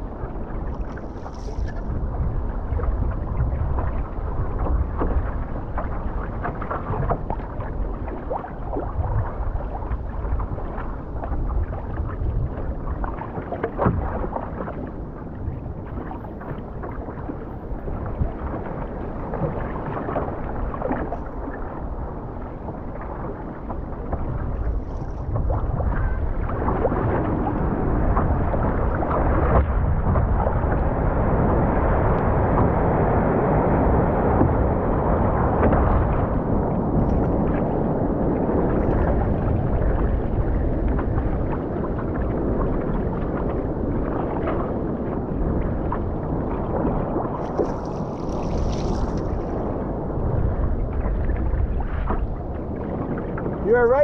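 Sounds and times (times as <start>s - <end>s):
ocean water splashing: 0.0s - 54.0s
wave breaking: 0.0s - 54.0s
wind buffeting microphone: 0.0s - 54.0s.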